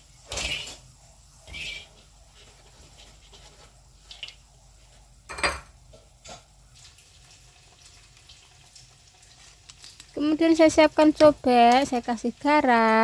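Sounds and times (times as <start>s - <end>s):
kitchen utensils clinking: 0.3s - 0.9s, 5.3s - 6.5s.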